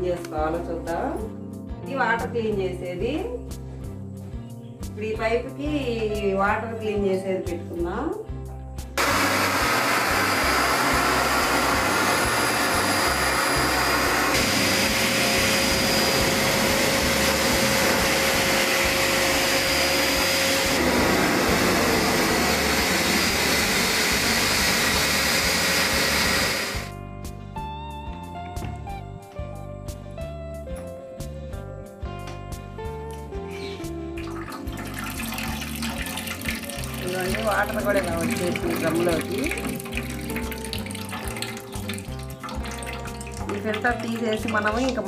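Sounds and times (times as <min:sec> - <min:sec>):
background guitar music: 0:00.0 - 0:45.0
vacuum cleaner sucking water: 0:09.0 - 0:26.9, 0:34.3 - 0:45.0.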